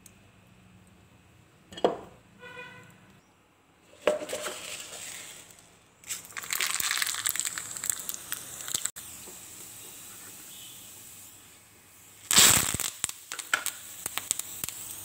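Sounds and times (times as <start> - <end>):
oil sizzling: 3.9 - 15.0
mustard seeds popping in oil: 5.5 - 10.7, 12.3 - 15.0.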